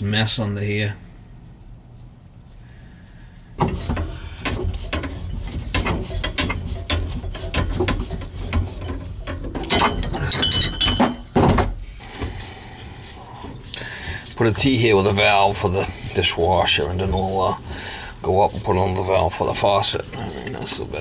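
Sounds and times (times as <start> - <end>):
tubing cutter clicking and scraping: 3.6 - 10.3, 13.4 - 21.0.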